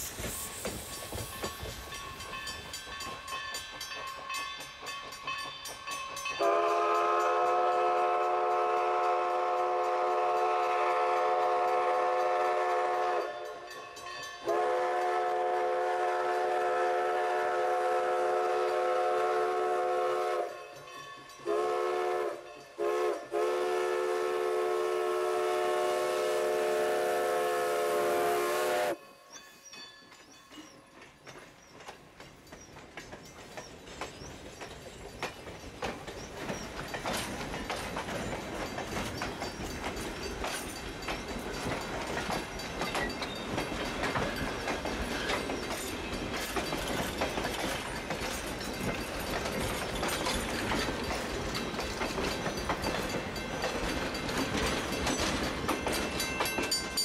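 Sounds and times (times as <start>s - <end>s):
train rolling past: 0.0s - 57.0s
steam whistle blasts: 6.4s - 13.5s, 14.4s - 20.6s, 21.5s - 29.0s.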